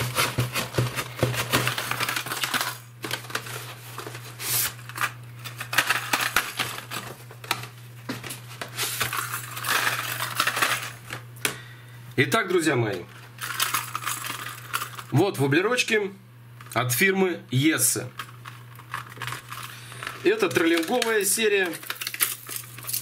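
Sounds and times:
plastic packs clicking and clattering: 0.0s - 11.6s, 13.4s - 15.2s, 18.1s - 23.0s
steady low hum: 0.0s - 23.0s.

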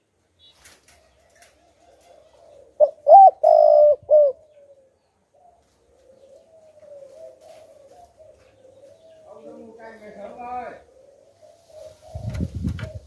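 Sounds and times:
dove cooing: 1.1s - 13.0s
faint low wavering cooing: 1.2s - 9.6s.

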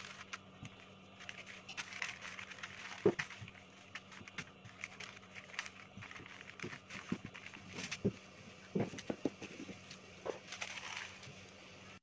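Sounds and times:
baking paper crinkling: 0.0s - 11.6s.

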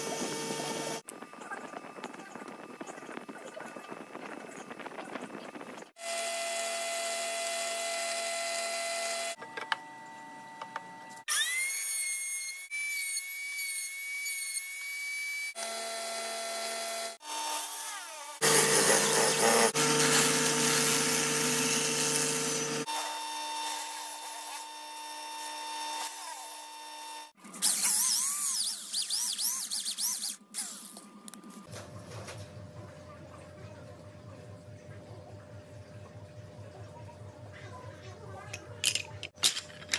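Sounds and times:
wood being cut: 0.0s - 1.0s, 6.0s - 9.4s, 11.2s - 30.4s
boring machine whining: 0.0s - 1.2s, 6.0s - 30.4s
electric drill spinning: 11.2s - 30.9s.

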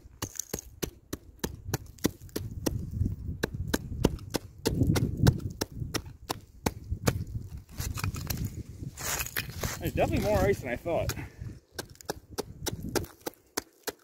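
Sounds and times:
knife chipping ice: 0.2s - 2.8s, 3.4s - 7.2s, 11.8s - 14.0s.

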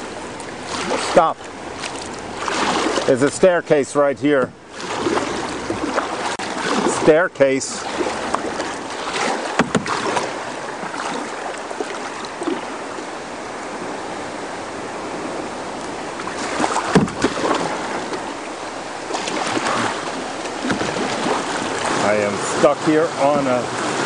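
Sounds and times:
sharp knocks: 9.2s - 10.3s, 16.6s - 17.6s, 20.6s - 21.3s.

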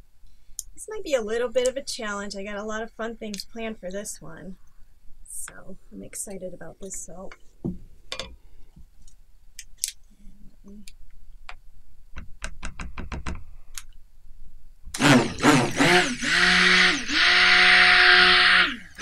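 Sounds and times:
stick blender motor whining: 15.0s - 19.0s.

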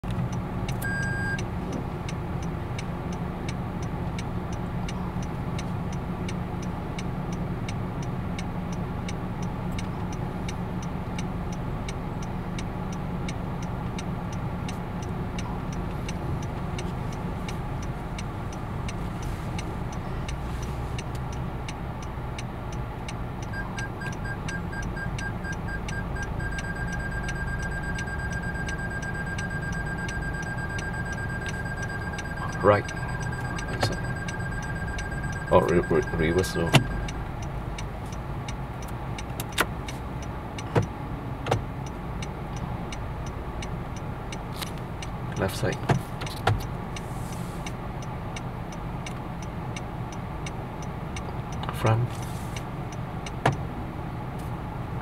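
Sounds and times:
car engine rumbling: 0.0s - 55.0s
steady ticking: 0.1s - 52.0s
reversing warning beeps: 0.8s - 1.5s, 23.4s - 37.2s.

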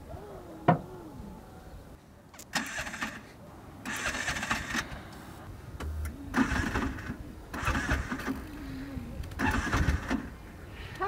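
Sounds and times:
engine cranking without catching: 2.4s - 5.0s, 5.8s - 8.6s, 9.3s - 10.3s.

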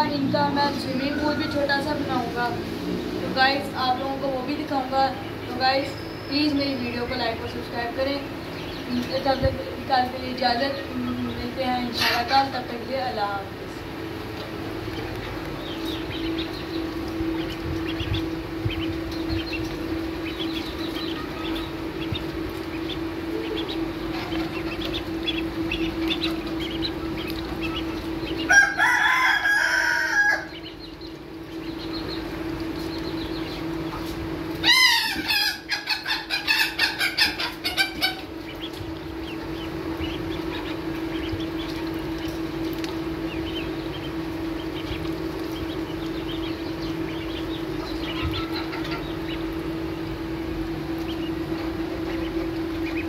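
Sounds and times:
ducklings peeping: 0.0s - 53.0s
steady low hum: 0.0s - 53.0s
loud bird calls: 14.6s - 53.0s.

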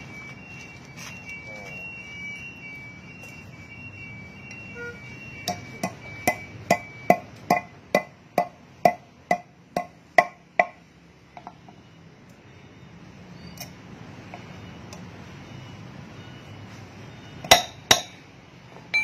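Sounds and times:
hammer striking metal: 5.4s - 10.8s, 17.4s - 18.2s.

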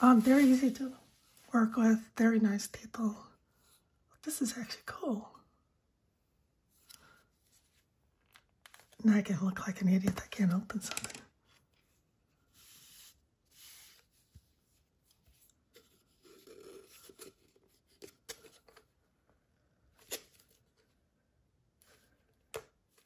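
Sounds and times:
soft rustling and sliding: 0.0s - 1.8s, 6.7s - 9.0s, 11.4s - 18.8s.

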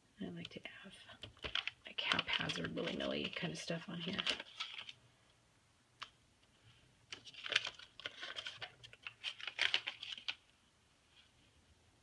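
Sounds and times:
paper stickers crackling: 1.3s - 5.0s, 7.1s - 10.4s.

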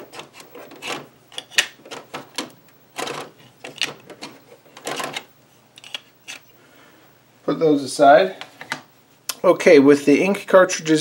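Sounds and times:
plastic cartridges clicking and rattling: 0.1s - 6.4s.

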